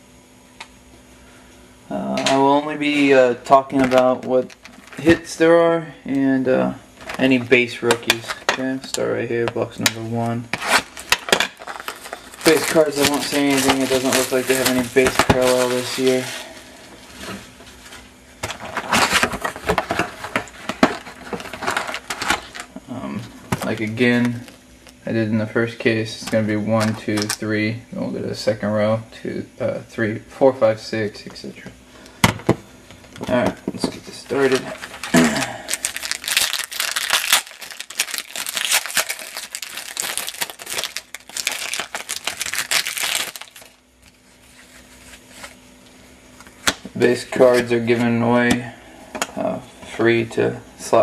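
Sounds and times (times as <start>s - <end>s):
card packs crinkling and tapping: 2.2s - 5.4s, 7.0s - 25.0s, 26.2s - 27.4s, 32.2s - 45.6s.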